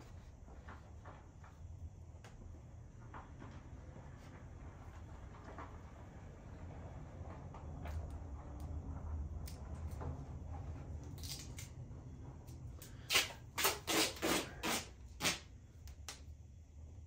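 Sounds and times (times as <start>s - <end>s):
low steady hum: 0.0s - 17.0s
duct tape ripping off roll: 12.9s - 15.5s.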